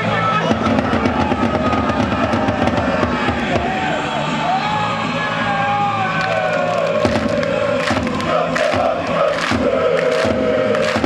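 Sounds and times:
crowd singing a chant: 2.8s - 11.0s.

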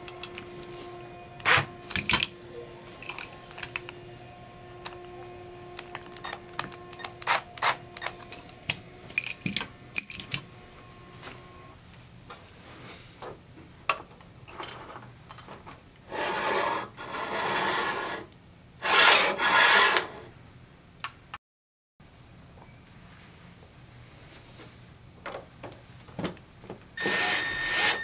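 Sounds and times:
metal parts clinking: 0.0s - 2.3s, 2.9s - 4.0s, 4.8s - 10.5s
steel bracket scraping: 16.1s - 20.2s.

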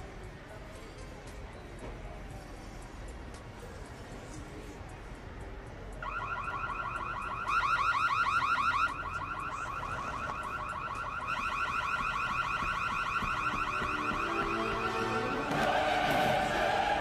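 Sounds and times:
electronic alarm whooping: 6.0s - 17.0s.

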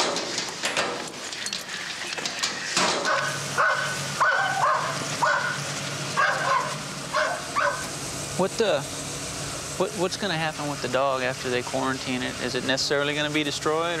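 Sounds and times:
dog barking and yelping: 3.0s - 7.9s.

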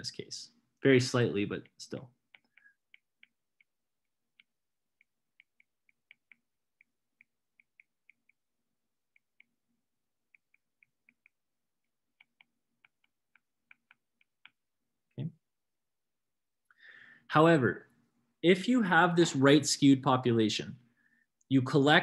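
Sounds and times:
stylus tapping on glass screen: 2.2s - 8.5s, 10.2s - 14.7s.

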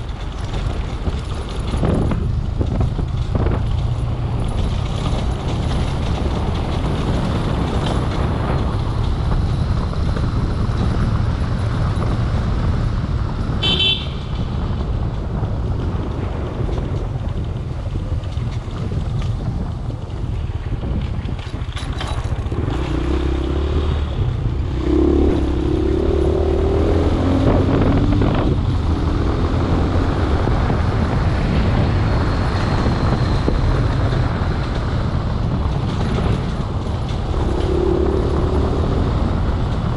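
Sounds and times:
road rumble on dirt road: 0.0s - 39.9s
high horn toot: 13.6s - 14.3s.

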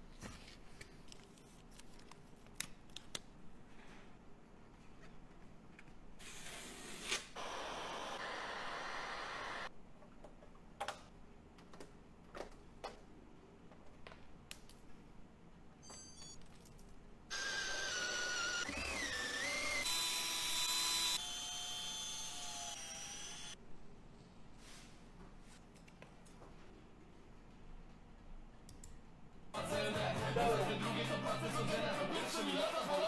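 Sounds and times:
cordless drill whining: 17.3s - 23.6s.

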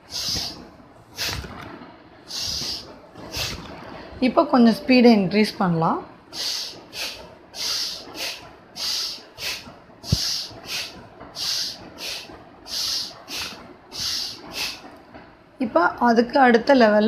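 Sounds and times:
forceful rhythmic nasal breathing: 0.0s - 1.6s, 2.2s - 3.9s, 6.3s - 15.0s.

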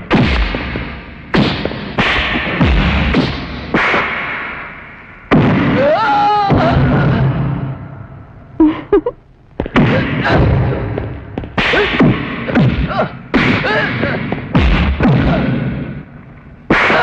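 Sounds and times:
punch and kick impacts: 0.0s - 4.5s, 5.3s - 5.9s, 9.6s - 16.0s
people yelling and grunting: 5.6s - 7.6s, 11.6s - 14.4s.

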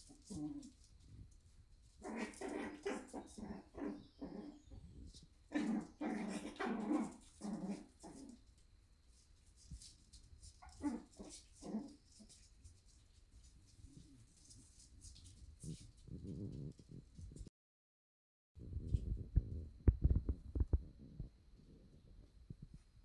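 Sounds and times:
puppies yapping and growling: 5.6s - 8.4s.

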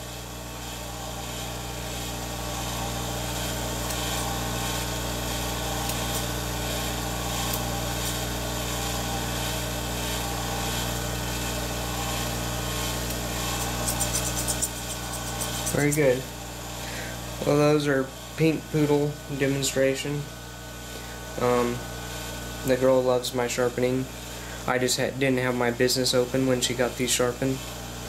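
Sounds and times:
sharpening machine motor hum: 0.0s - 28.0s
shears snipping paper: 13.1s - 16.2s.

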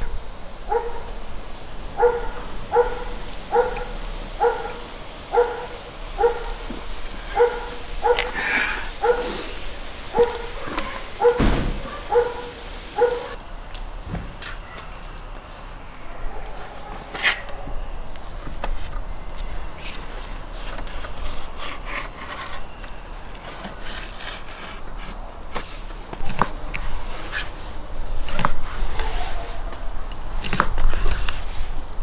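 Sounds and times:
dog barking: 0.0s - 1.2s, 1.9s - 9.5s, 10.1s - 13.4s, 16.0s - 17.7s
dull thump: 11.3s - 12.0s, 14.0s - 14.6s.

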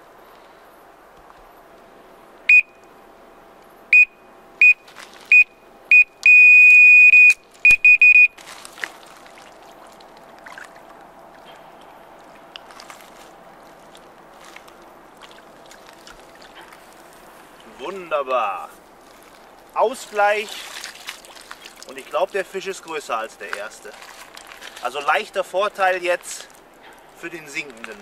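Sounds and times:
bite alarm beeping: 2.5s - 2.8s, 3.9s - 8.4s.

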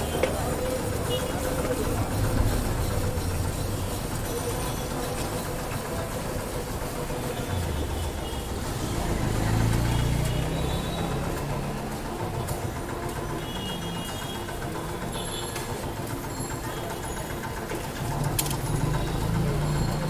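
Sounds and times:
vehicle engine rumble: 0.0s - 20.0s.

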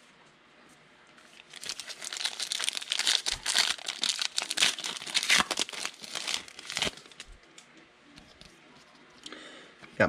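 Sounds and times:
foil wrapper crinkling and tearing: 1.4s - 7.3s.

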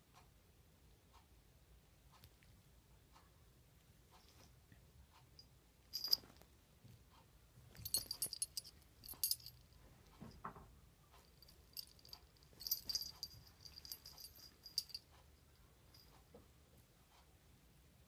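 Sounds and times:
metallic jingling and clicking: 5.9s - 6.4s, 7.7s - 9.7s, 11.2s - 16.2s.

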